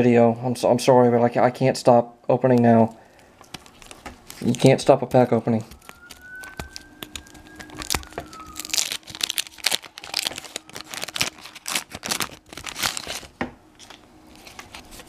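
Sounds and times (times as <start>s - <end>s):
wax paper wrapper tearing and crinkling: 3.2s - 15.0s.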